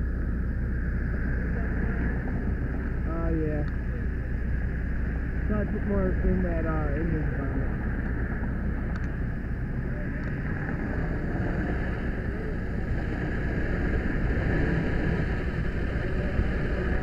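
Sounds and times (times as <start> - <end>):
fire engine pump rumbling: 0.0 - 17.0.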